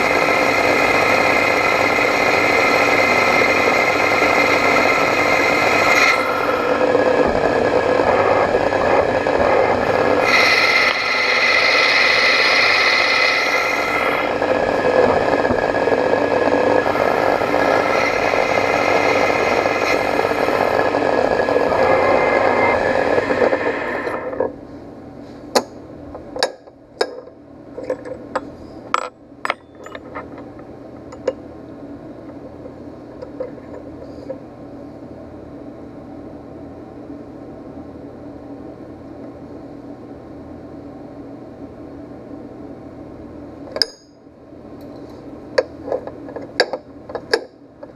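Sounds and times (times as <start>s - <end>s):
metal scraping on lathe: 0.0s - 24.4s
lathe whine: 0.0s - 24.6s.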